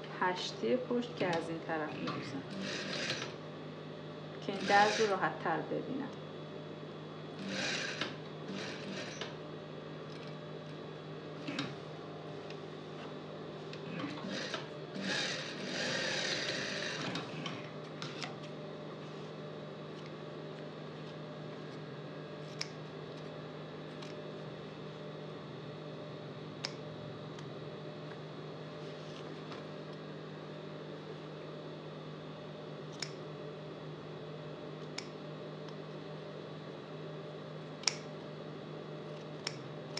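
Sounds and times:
sewing machine motor humming: 0:02.1 - 0:03.4, 0:04.4 - 0:05.2, 0:07.4 - 0:09.4, 0:13.7 - 0:18.2
shears snipping threads: 0:37.8 - 0:38.1, 0:39.4 - 0:39.6.

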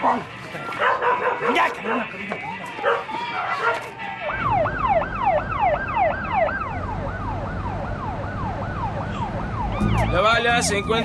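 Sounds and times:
ambulance siren yelping: 0:00.6 - 0:11.0
vehicle rumble: 0:03.9 - 0:11.0.

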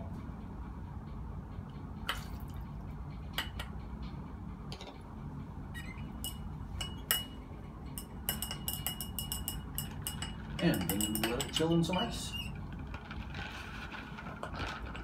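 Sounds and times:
glass rod clinking in beaker: 0:06.2 - 0:07.4, 0:08.0 - 0:12.4.

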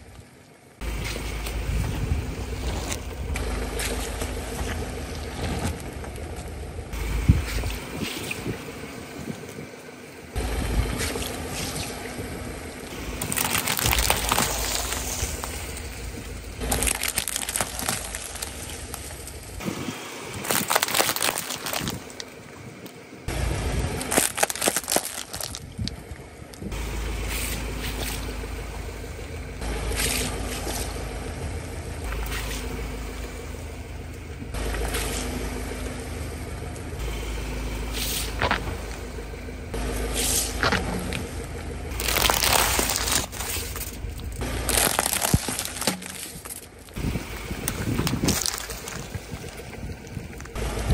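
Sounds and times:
car engine idling: 0:00.0 - 0:50.9
plastic cups cracking under tyre: 0:12.9 - 0:15.9, 0:16.6 - 0:19.4, 0:20.3 - 0:22.9, 0:24.0 - 0:26.7, 0:41.9 - 0:50.6
gel beads squishing and crunching: 0:12.9 - 0:16.0, 0:16.6 - 0:19.4, 0:20.3 - 0:22.4, 0:24.0 - 0:26.7, 0:41.9 - 0:50.6.

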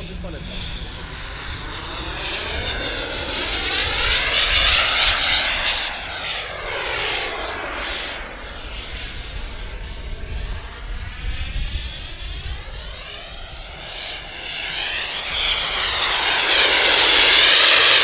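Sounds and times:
model jet turbine whine: 0:00.0 - 0:18.0.

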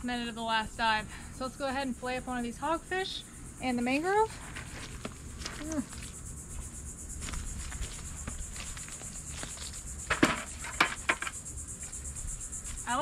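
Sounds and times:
insects buzzing: 0:00.0 - 0:13.0
knocks and rattles in plastic bucket: 0:10.1 - 0:11.3.

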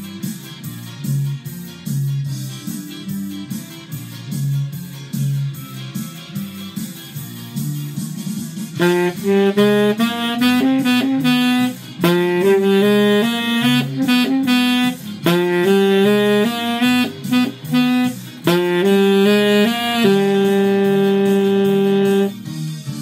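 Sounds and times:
saxophone solo: 0:08.8 - 0:22.5.

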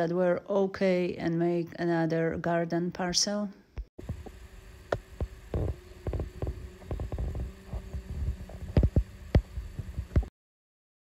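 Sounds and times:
faint steady hum: 0:03.0 - 0:10.3
low thumps and knocks: 0:04.0 - 0:10.3.

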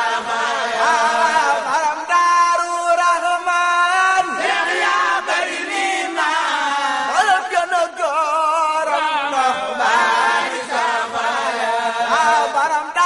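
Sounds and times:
voices chanting a song: 0:00.0 - 0:02.1, 0:04.0 - 0:08.0, 0:08.8 - 0:13.0.

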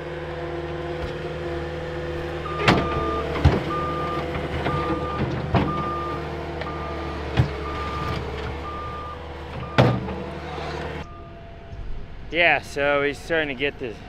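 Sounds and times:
diesel engine running: 0:00.0 - 0:14.0
backup alarm beeping: 0:02.4 - 0:10.1, 0:11.0 - 0:11.8.

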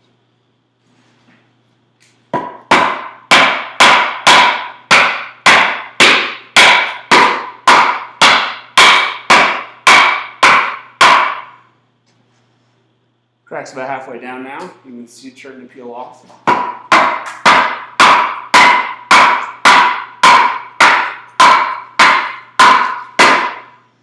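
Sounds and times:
wooden club knocking wooden wedges: 0:02.3 - 0:11.6, 0:16.3 - 0:23.8.

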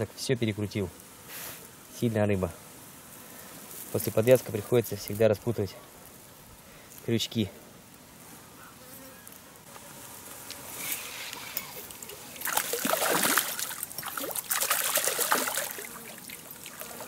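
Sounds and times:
water splashing: 0:11.8 - 0:17.0
water trickling: 0:11.8 - 0:17.0.

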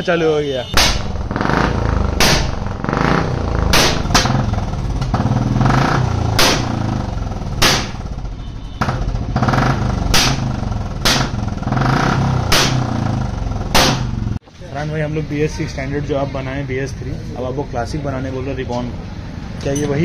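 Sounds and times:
exhaust backfire pops: 0:00.8 - 0:14.4
motorcycle engine revving: 0:00.8 - 0:14.4.

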